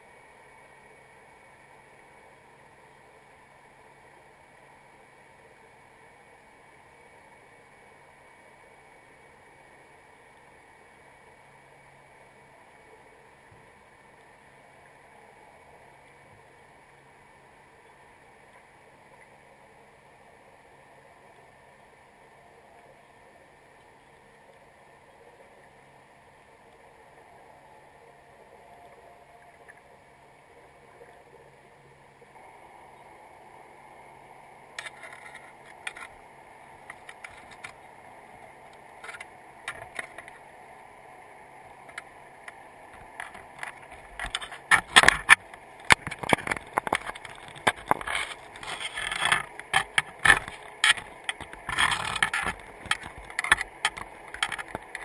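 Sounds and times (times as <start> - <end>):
low underwater hiss: 0.0 - 55.0.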